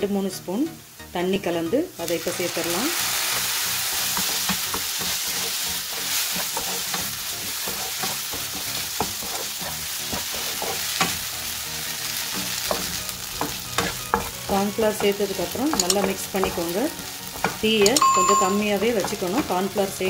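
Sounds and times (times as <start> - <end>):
vegetables sizzling in frying pan: 0.0 - 20.0
spatula scraping and tapping pan: 3.3 - 11.3, 12.3 - 19.8.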